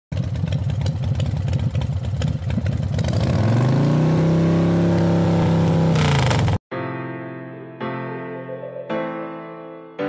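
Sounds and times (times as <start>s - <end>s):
motorcycle engine idling and revving: 0.1s - 6.6s.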